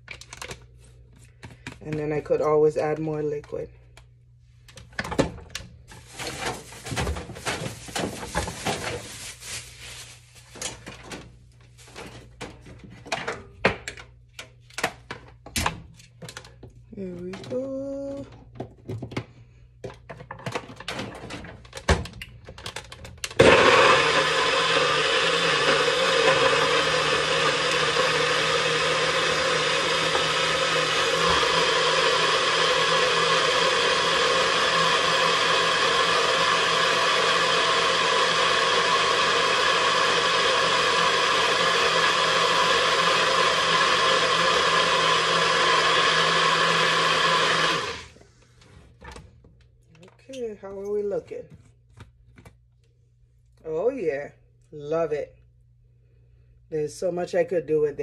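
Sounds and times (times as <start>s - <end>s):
blender running: 23.3s - 48.2s.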